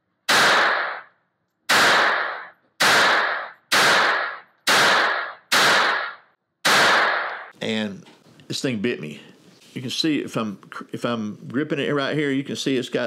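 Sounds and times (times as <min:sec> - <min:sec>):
pistol shots echoing indoors: 0:00.2 - 0:07.5.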